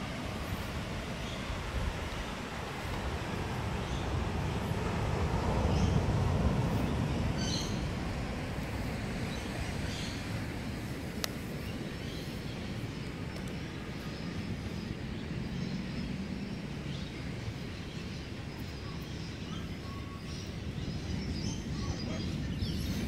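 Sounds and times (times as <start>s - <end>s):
low outdoor rumble: 0.0s - 23.0s
faint bird chirps: 18.1s - 23.0s.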